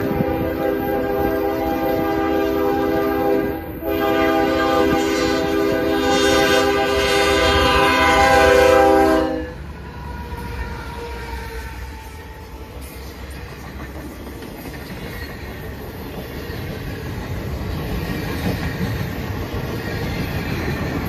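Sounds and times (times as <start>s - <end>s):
locomotive air horn blasts: 0.0s - 9.6s
rumble of passing freight train: 0.0s - 21.0s.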